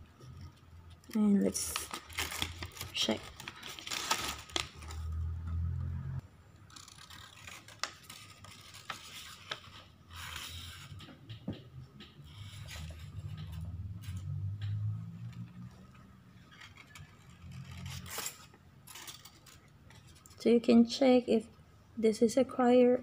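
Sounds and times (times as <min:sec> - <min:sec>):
paper rustling and crinkling: 0:01.1 - 0:05.2, 0:06.7 - 0:10.9, 0:16.5 - 0:20.4.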